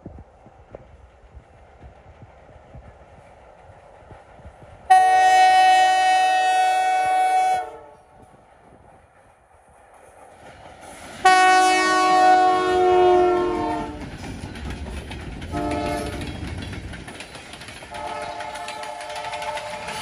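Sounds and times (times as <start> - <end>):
locomotive rumbling: 0.0 - 20.0
locomotive air horn: 4.9 - 8.1, 11.2 - 14.0, 15.5 - 16.3, 17.9 - 20.0
freight car wheels clicking on rails: 13.9 - 20.0.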